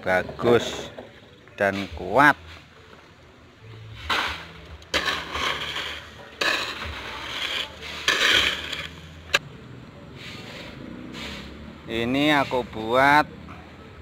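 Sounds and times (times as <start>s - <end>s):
shovel scraping gravel: 3.9s - 9.4s, 10.2s - 11.6s, 12.2s - 13.0s.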